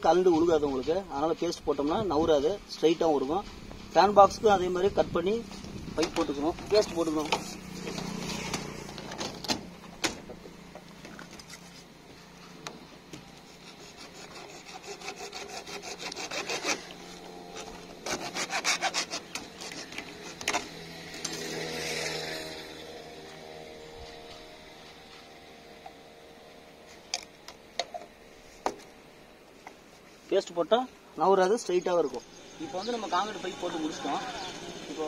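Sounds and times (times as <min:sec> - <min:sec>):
hacksaw cutting plastic pipe: 0:13.5 - 0:17.0, 0:17.6 - 0:21.5.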